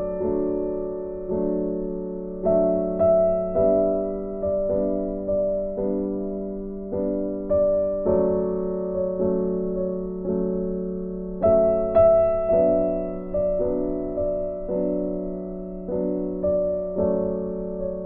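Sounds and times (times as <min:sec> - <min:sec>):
slow piano chords: 0:00.0 - 0:18.0.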